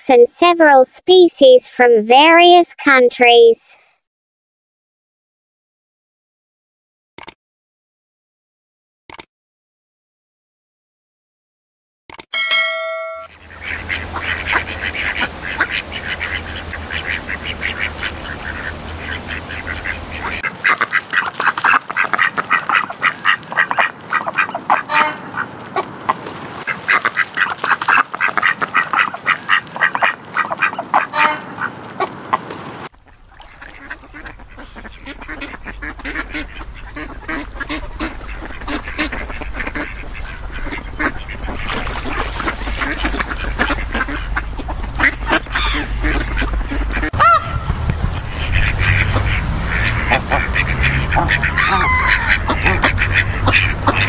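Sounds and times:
brief ringing tone: 12.3 - 13.3
ducks quacking: 12.8 - 54.0.

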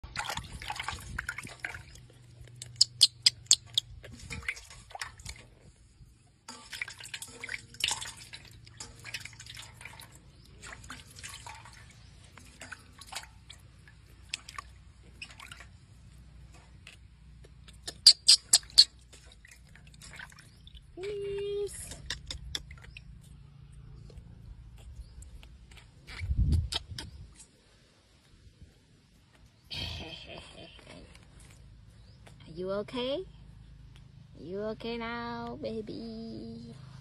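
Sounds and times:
water splashing in metal bowl: 0.0 - 5.8, 6.4 - 16.9, 17.8 - 23.2.

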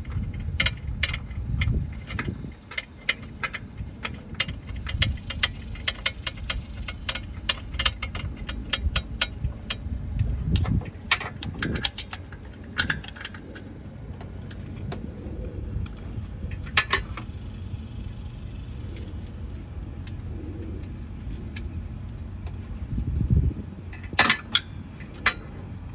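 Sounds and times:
socket ratchet clicking: 0.4 - 13.4.

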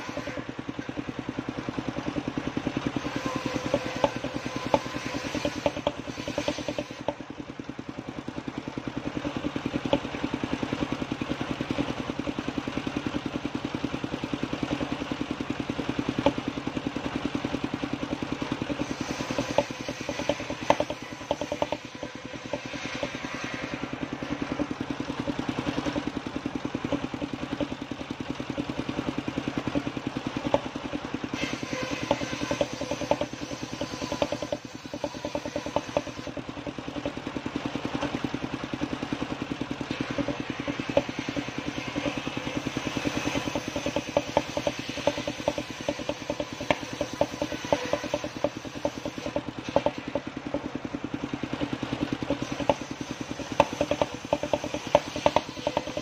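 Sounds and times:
saw bench engine chugging: 0.0 - 56.0
wood knocking on saw table: 3.0 - 7.2, 18.7 - 23.5, 31.4 - 36.3, 40.0 - 50.6, 52.3 - 56.0.

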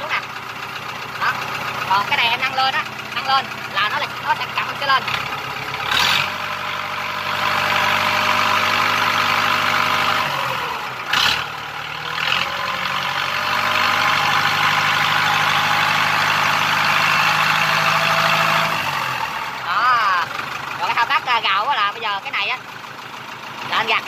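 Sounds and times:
tractor diesel engine running: 0.0 - 24.0.

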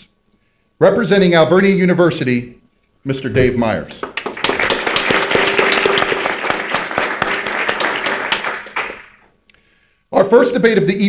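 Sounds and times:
audience applauding: 4.0 - 9.3.

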